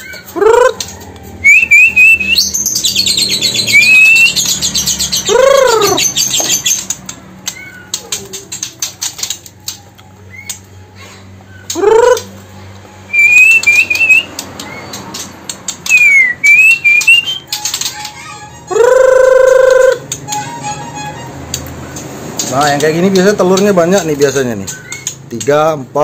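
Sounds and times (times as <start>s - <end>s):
bird rising and falling call: 1.4s - 6.8s, 13.1s - 14.9s, 15.9s - 17.5s
birds chirping and trilling: 1.4s - 18.7s, 21.6s - 25.4s.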